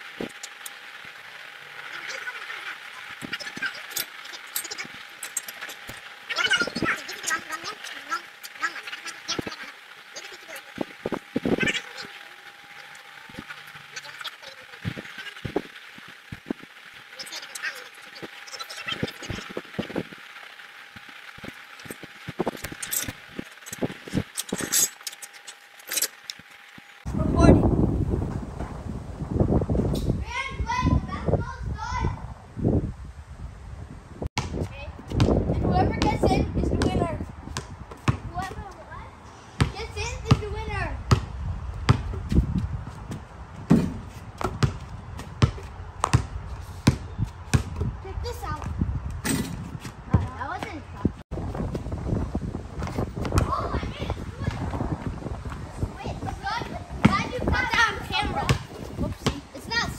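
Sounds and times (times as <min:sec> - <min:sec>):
balls bouncing on concrete: 0:41.1 - 0:41.3, 0:41.9 - 0:42.4, 0:43.0 - 0:48.0, 0:56.2 - 0:59.6.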